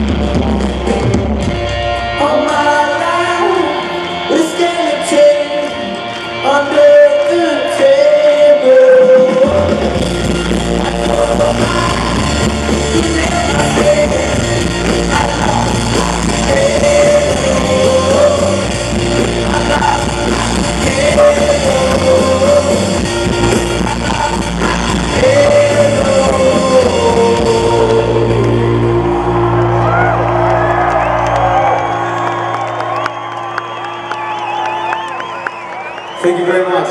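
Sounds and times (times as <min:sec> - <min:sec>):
rock band playing: 0:00.0 - 0:36.1
man singing long notes: 0:02.1 - 0:30.1.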